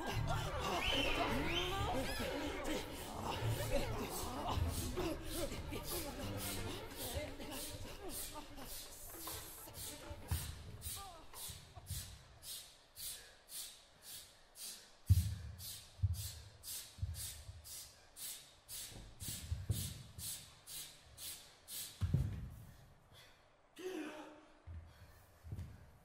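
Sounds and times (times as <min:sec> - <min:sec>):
sharp rhythmic breaths: 0:00.0 - 0:26.0.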